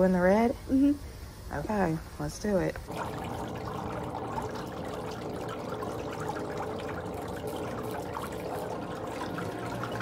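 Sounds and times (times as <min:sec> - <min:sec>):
water running into a basin: 0:02.8 - 0:10.0.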